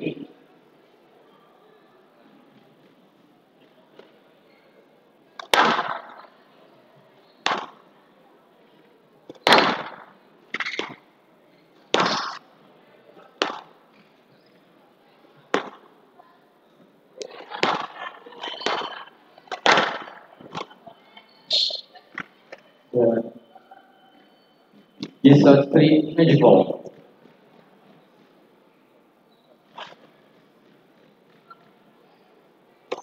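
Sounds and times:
squash ball hits echoing: 5.4 - 6.3, 7.4 - 7.9, 9.3 - 11.0, 11.9 - 12.4, 13.4 - 13.8, 15.5 - 15.9, 17.6 - 18.0, 19.5 - 20.7.

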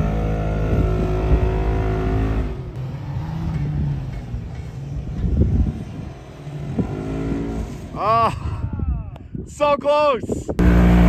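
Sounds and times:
off-road engines revving: 0.0 - 8.4, 10.6 - 11.0.

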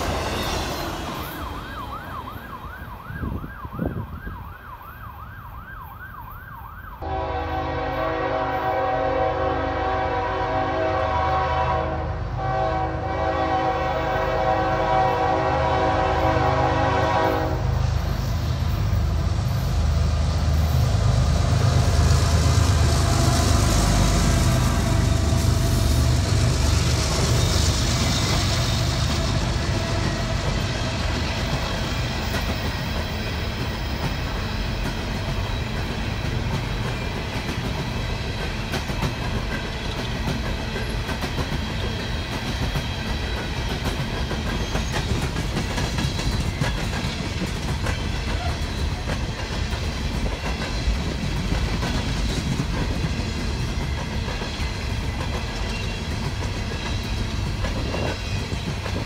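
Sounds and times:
locomotive engines rumbling: 0.0 - 4.2, 7.1 - 59.0
train wheels clicking over rail joints: 18.0 - 59.0.

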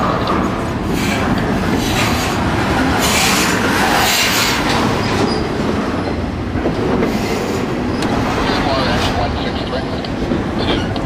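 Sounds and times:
freight train wheels on rail: 0.0 - 11.0.

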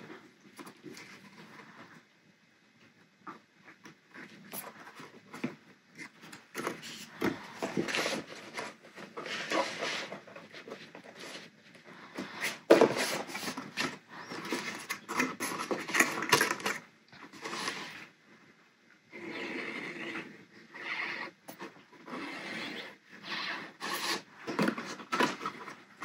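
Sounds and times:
cardstock rustling and scraping: 4.2 - 11.6, 12.2 - 18.1, 23.7 - 26.0.

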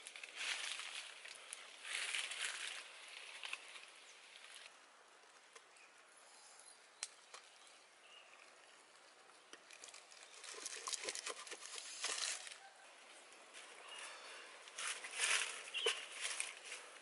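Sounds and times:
dry leaves rustling: 0.0 - 4.7, 8.5 - 17.0.

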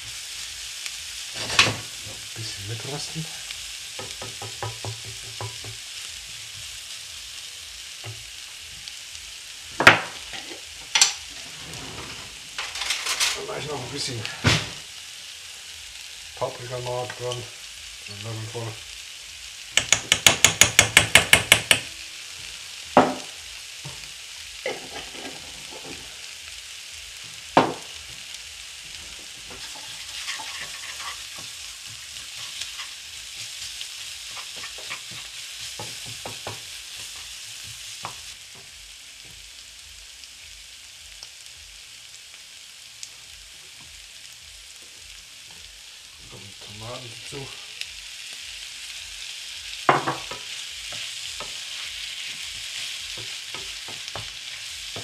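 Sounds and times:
vegetables sizzling in a frying pan: 0.0 - 55.0
sharp knocks on a pan: 4.0 - 5.8, 9.8 - 10.2, 19.8 - 21.9, 23.0 - 23.3, 27.6 - 27.9, 49.9 - 50.4
spoon tapping on a pan: 4.0 - 5.8, 19.7 - 21.9
wooden spatula scraping a pan: 10.3 - 13.5, 24.6 - 26.2, 28.9 - 37.8, 50.2 - 55.0.

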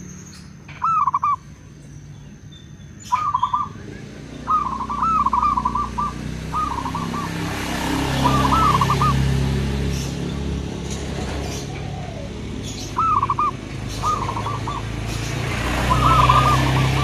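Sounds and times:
dove cooing: 4.4 - 9.5, 11.1 - 17.0.

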